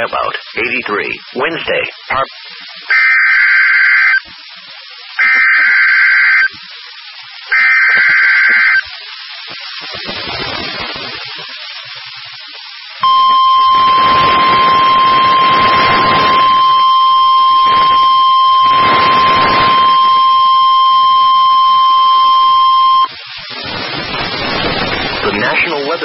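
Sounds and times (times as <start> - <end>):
radio hiss and static: 0.0 - 26.0
long loud alarm beep: 2.9 - 4.2, 5.2 - 6.5, 7.5 - 8.8, 13.0 - 23.1.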